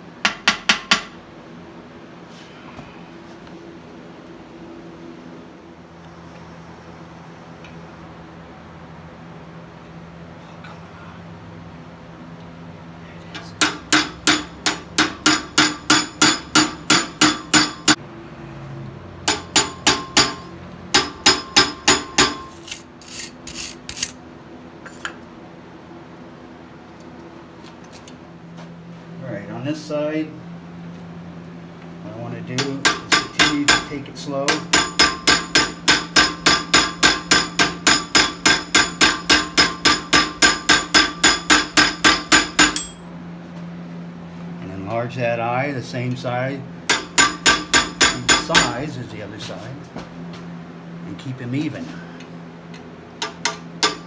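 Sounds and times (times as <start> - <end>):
hammer striking metal punch: 0.2 - 1.2, 13.6 - 18.0, 19.2 - 22.6, 32.5 - 43.1, 46.9 - 48.8, 53.2 - 54.0.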